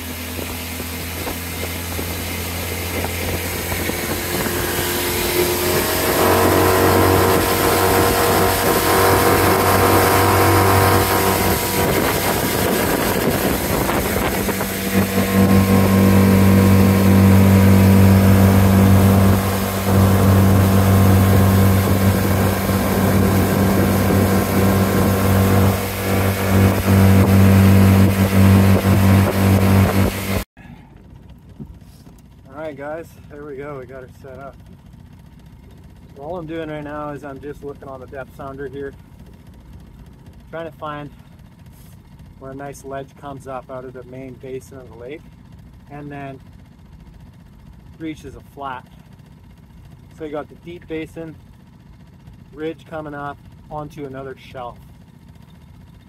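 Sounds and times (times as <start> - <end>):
outboard motor running: 0.0 - 56.0.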